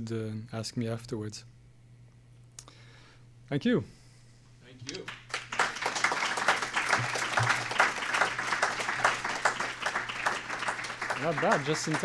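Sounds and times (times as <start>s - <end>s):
audience applause: 5.0s - 12.0s.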